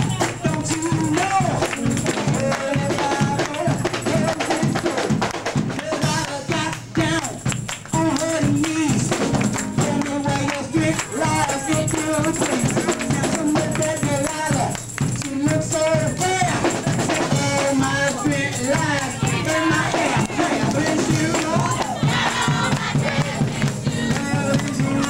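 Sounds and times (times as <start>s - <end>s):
tambourine: 0.0s - 25.0s
upbeat gospel music with singing: 0.0s - 25.0s.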